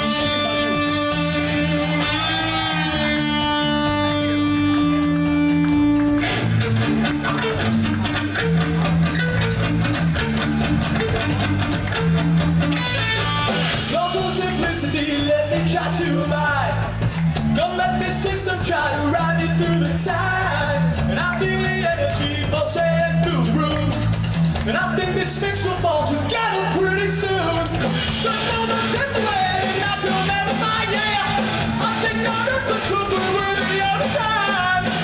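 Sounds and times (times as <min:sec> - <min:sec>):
punk rock band playing: 0:00.0 - 0:35.0
person singing: 0:13.9 - 0:16.9, 0:17.6 - 0:24.1, 0:24.7 - 0:35.0.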